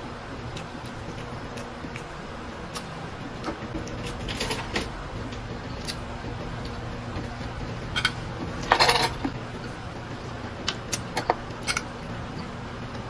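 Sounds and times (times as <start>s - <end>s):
steady low hum: 0.0s - 13.0s
plate clatter: 8.0s - 9.2s.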